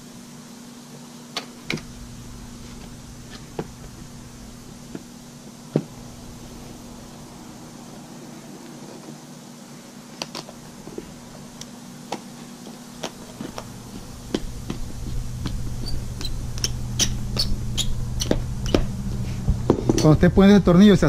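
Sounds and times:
steady low hum: 0.0s - 21.0s
low rumble: 1.6s - 7.9s.

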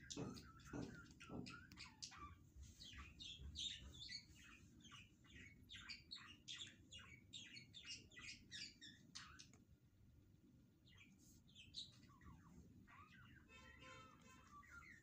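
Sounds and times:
faint rapid bird chirping: 0.0s - 15.0s.

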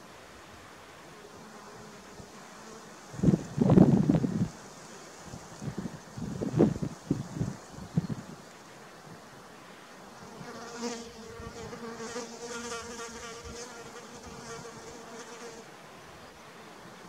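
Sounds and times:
flying insect buzzing: 10.1s - 15.6s.

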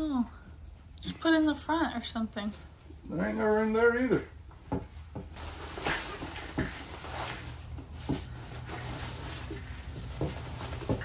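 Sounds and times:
backpack rustling and crinkling: 5.4s - 11.0s.

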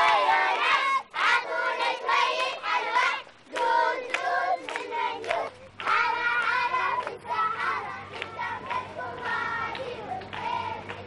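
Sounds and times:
children singing a chant: 0.0s - 11.0s
hand clapping: 3.5s - 11.0s.

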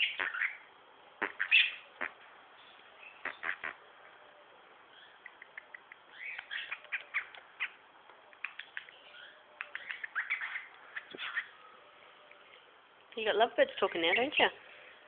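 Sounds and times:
cockatiel chirping and clicking: 5.2s - 7.4s, 8.4s - 9.0s, 9.6s - 11.4s.

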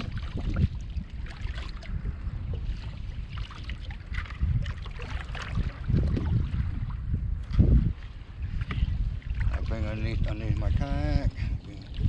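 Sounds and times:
water splashing against kayak hull: 0.0s - 12.0s
wind buffeting microphone: 0.0s - 12.0s.

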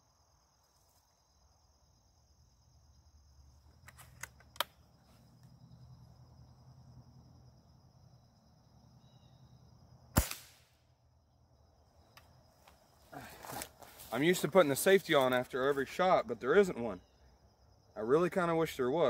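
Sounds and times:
air rifle shot: 10.1s - 10.8s.

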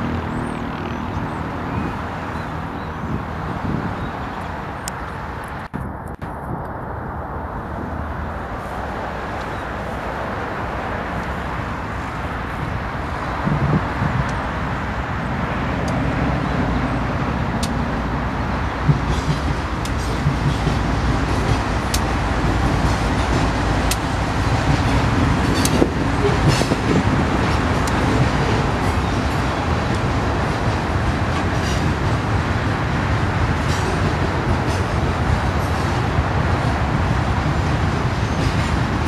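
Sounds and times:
locomotive engines humming: 0.0s - 39.0s
rolling rumble of freight cars: 0.0s - 39.0s
wheels clicking on rails: 15.3s - 39.0s.

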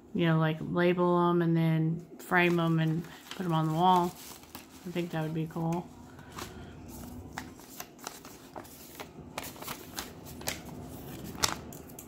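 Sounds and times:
paper rustling and crackling: 2.3s - 11.9s.

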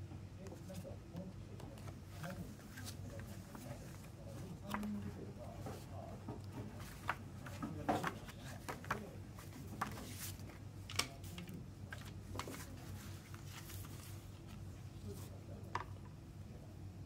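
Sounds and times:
paper pages rustling: 1.8s - 15.3s.

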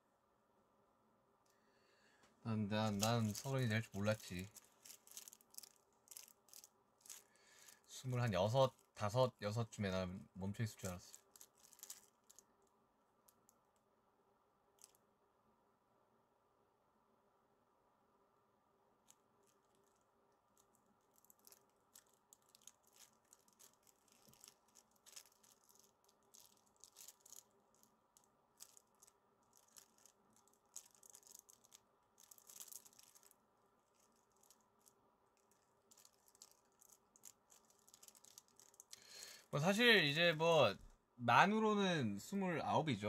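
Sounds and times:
low steady hum: 0.0s - 43.0s
faint clicks and rustles: 2.2s - 9.1s, 10.6s - 13.9s, 19.0s - 39.6s.

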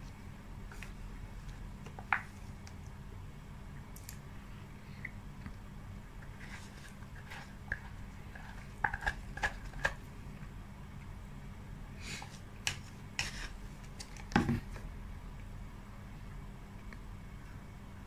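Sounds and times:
spoon scraping plastic cup: 6.2s - 9.9s.

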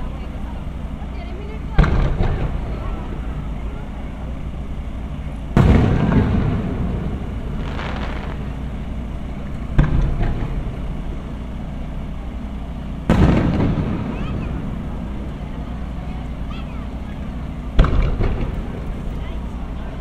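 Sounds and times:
firework shells booming: 1.8s - 3.6s, 4.8s - 16.5s, 17.2s - 19.6s.

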